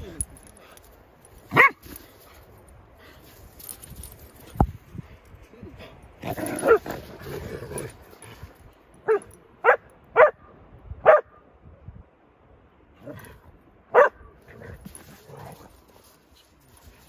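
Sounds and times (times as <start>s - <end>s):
dog barking: 1.6s - 1.8s, 9.1s - 10.4s, 11.0s - 11.3s, 13.9s - 14.3s.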